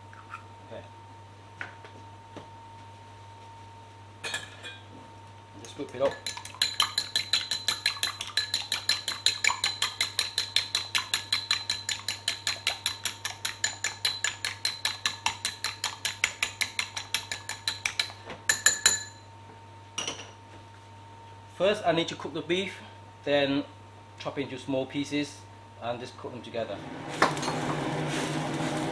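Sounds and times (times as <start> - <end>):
whisk clinking against bowl: 6.0 - 19.1.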